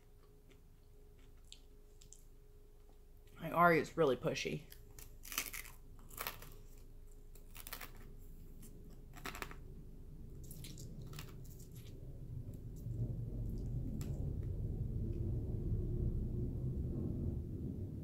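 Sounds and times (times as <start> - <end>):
chewing and crunching: 0.0 - 2.3, 4.7 - 9.7, 10.3 - 14.5.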